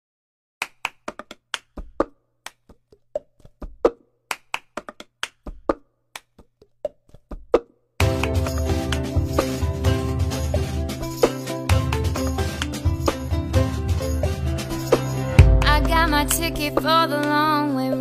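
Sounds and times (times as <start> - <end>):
hand claps and taps: 0.6 - 2.8, 3.4 - 9.1, 11.8 - 12.9
music track with bass: 8.0 - 18.0.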